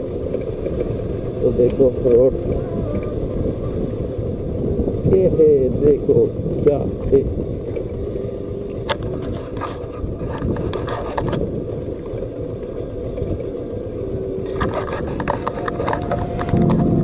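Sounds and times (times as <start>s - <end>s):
motorcycle engine running: 0.0s - 17.0s
sharp clicks and rattles: 0.2s - 3.2s, 8.7s - 13.6s, 14.4s - 17.0s
music: 16.5s - 17.0s.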